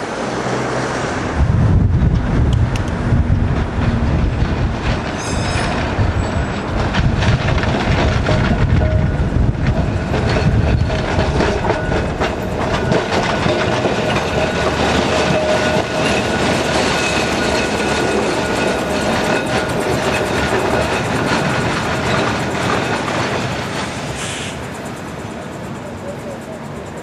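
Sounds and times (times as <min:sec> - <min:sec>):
steel wheels rumbling on rails: 0:00.0 - 0:27.0.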